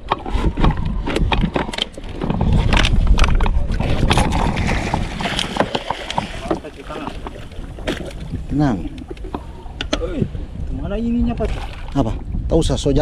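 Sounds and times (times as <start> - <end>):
water splashing: 0.0 - 9.8
wind rumble on microphone: 0.0 - 13.0.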